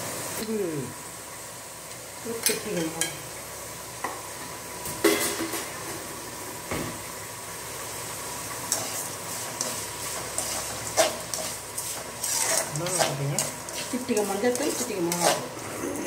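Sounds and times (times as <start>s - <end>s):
vegetables sizzling in hot oil: 0.0s - 16.0s
metal spoon scraping a metal pan: 8.7s - 15.7s.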